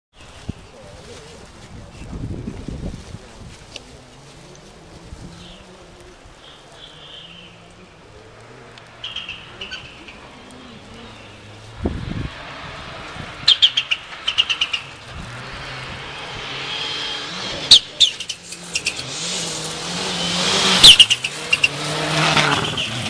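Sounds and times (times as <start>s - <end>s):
rally car engine approaching: 0.2s - 23.0s
bird chirping: 9.0s - 11.6s, 13.5s - 15.0s.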